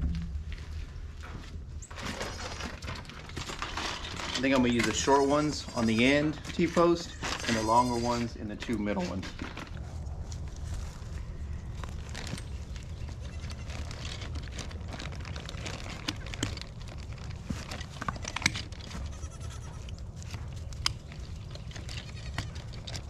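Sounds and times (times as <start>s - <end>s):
goat bleating: 18.1s - 19.9s.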